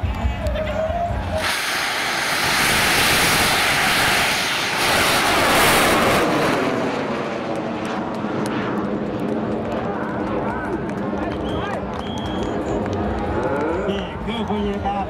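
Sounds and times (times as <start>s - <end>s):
rocket roaring: 1.3s - 14.3s.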